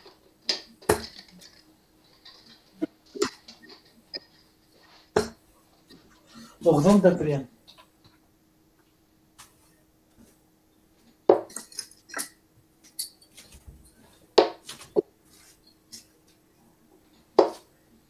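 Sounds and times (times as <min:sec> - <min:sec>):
light metallic clinks: 0:11.5 - 0:13.4
darts striking dartboard: 0:17.4 - 0:17.7.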